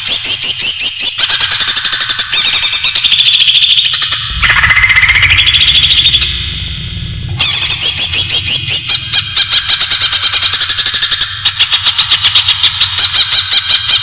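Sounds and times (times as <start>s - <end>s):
bird chattering calls: 7.3s - 14.0s.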